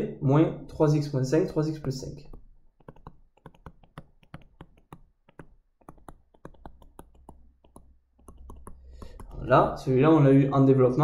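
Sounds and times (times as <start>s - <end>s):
stylus tapping on tablet screen: 1.7s - 9.8s.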